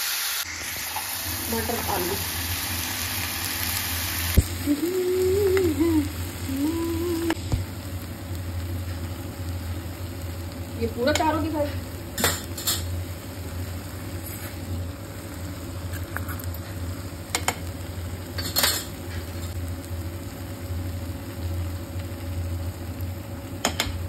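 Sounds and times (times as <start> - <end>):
vegetables frying in a pan: 0.0 - 24.0
low hum: 1.3 - 11.1.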